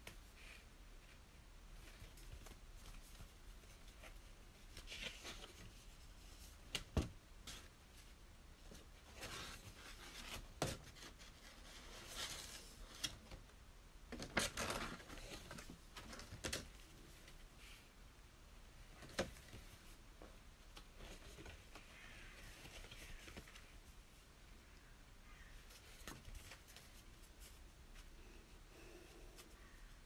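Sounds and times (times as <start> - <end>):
paper and card rustling: 1.8 - 6.9, 20.8 - 23.9.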